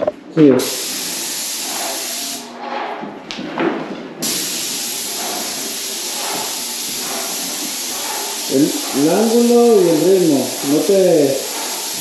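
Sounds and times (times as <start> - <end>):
paint sprayer hissing: 0.6 - 2.5, 4.2 - 12.0.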